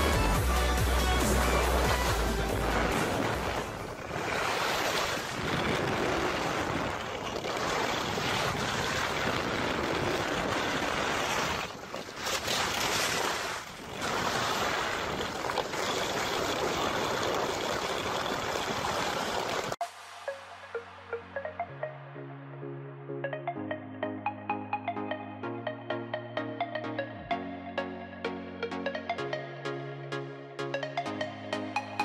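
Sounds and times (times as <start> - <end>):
wind rushing over microphone: 2.5 - 11.9.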